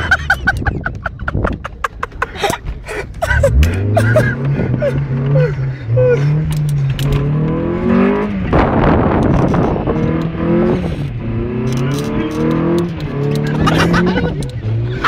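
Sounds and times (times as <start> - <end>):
car engine revving: 3.2 - 15.0.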